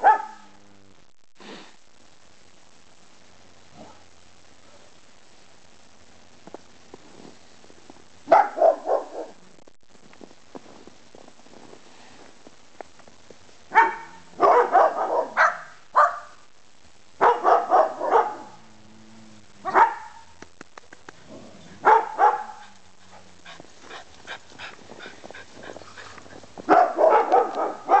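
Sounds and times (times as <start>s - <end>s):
dog barking: 0.0s - 0.6s, 8.3s - 9.4s, 13.7s - 16.4s, 17.2s - 18.6s, 19.6s - 20.3s, 21.8s - 22.8s, 26.7s - 28.0s.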